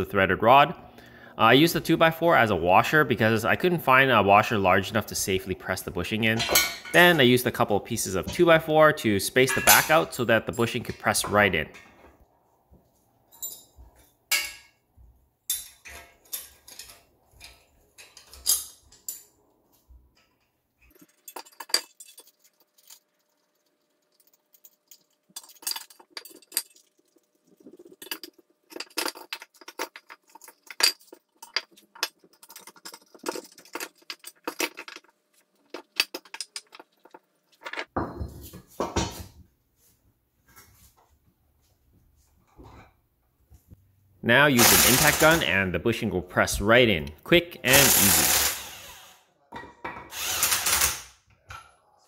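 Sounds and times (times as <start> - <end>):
metal washers and nuts clinking: 13.3 - 14.8, 15.5 - 19.4, 20.2 - 38.2, 44.6 - 45.4, 47.7 - 48.5.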